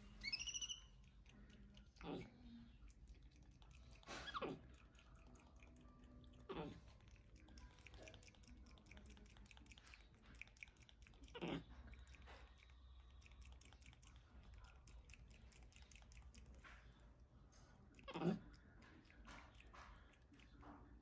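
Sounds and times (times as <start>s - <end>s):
monkey falling squeaks: 0.2s - 0.8s
monkey mouth smacking and clicking: 2.9s - 16.9s, 18.0s - 20.8s.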